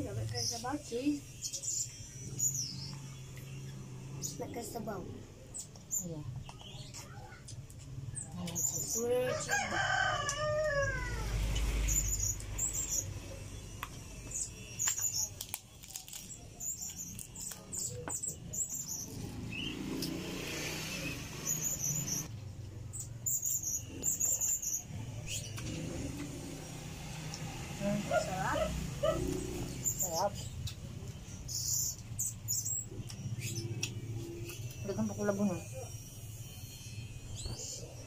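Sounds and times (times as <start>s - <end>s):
rooster crowing: 9.1s - 11.6s.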